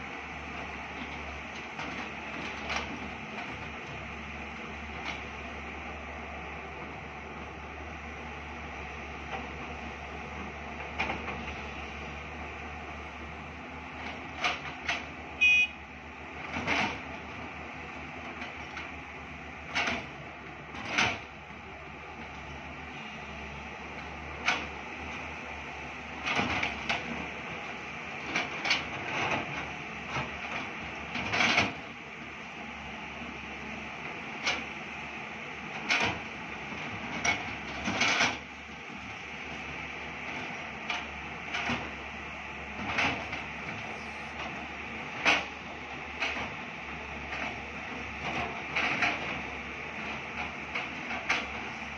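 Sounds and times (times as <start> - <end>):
excavator diesel engines running: 0.0 - 51.9
metallic clanks of excavator buckets: 20.7 - 21.3, 28.3 - 31.8, 35.7 - 36.3, 37.0 - 38.6.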